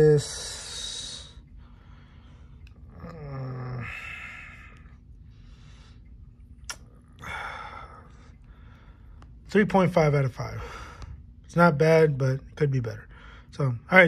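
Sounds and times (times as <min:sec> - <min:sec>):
breathy exhales: 0:00.4 - 0:06.0, 0:07.2 - 0:09.1
man humming hmm: 0:02.9 - 0:04.7.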